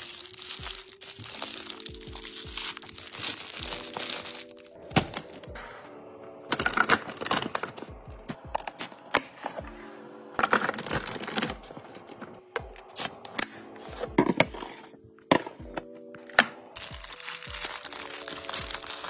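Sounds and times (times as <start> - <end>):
cellophane wrappers crinkling: 0.0 - 4.8, 16.8 - 19.0
soft background music: 0.0 - 19.0.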